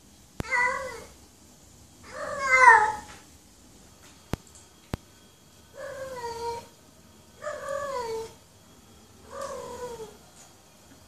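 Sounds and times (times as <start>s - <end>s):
cat meowing: 0.4s - 1.1s, 2.1s - 3.1s, 9.3s - 10.2s.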